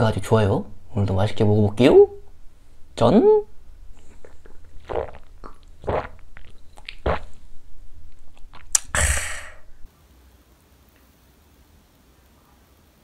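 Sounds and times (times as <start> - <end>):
man swallowing: 3.8 - 9.9
breathy exhale: 8.9 - 9.9.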